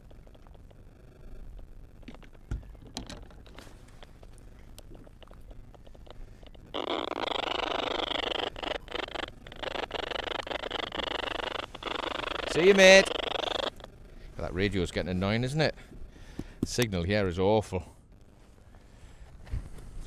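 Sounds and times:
faint clicks: 0.0 - 14.0
radio static hiss: 0.0 - 20.0.

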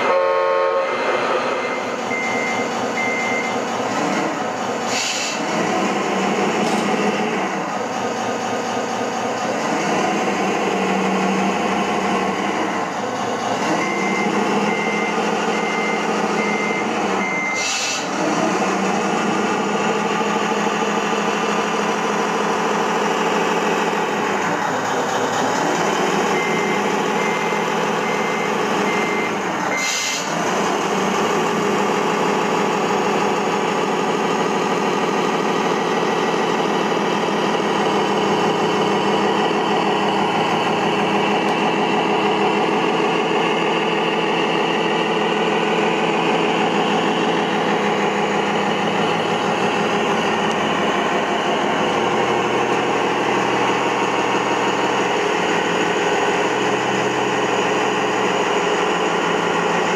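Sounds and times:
reversing beeper: 0.0 - 3.7, 13.6 - 18.2, 25.9 - 30.4
truck diesel engine idling: 0.0 - 59.9.

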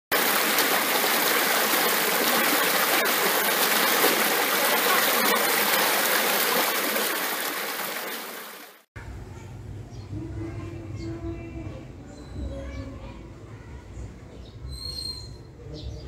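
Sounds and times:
stream rushing over rocks: 0.1 - 8.8.

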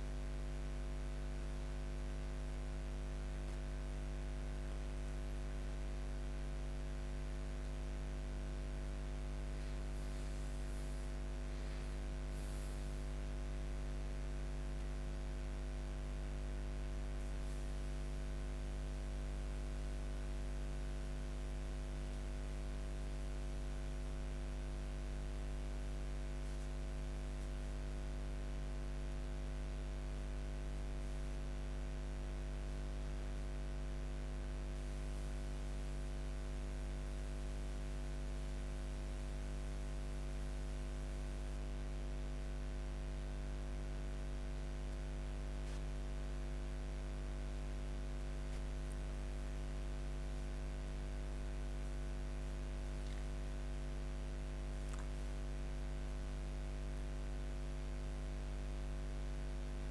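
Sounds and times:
electrical hum with tones: 0.0 - 59.9
faint hiss: 9.4 - 15.5, 34.6 - 36.3.

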